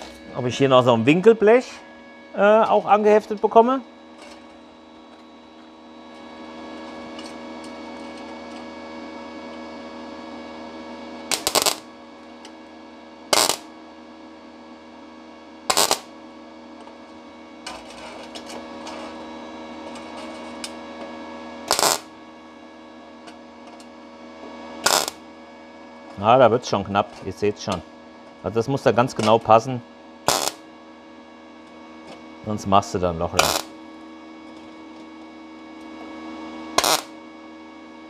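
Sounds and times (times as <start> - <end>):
steady welder hum: 0.0 - 38.0
welding arc bursts: 11.3 - 11.9, 13.3 - 13.7, 15.7 - 16.1, 21.7 - 22.1, 24.8 - 25.2, 30.3 - 30.6, 33.4 - 33.7, 36.8 - 37.2.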